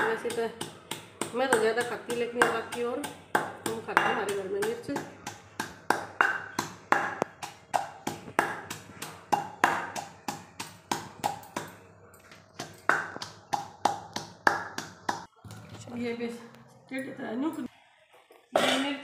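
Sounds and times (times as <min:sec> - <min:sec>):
pestle pounding in stone mortar: 0:00.0 - 0:11.8, 0:12.6 - 0:15.3.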